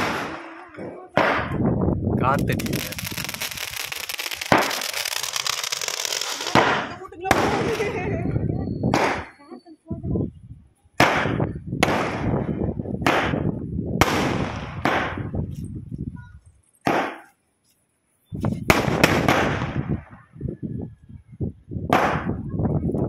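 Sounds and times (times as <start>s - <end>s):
firework shots: 0.0s - 8.2s, 8.9s - 9.4s, 11.0s - 15.5s, 16.8s - 17.3s, 18.6s - 20.3s, 21.9s - 22.5s.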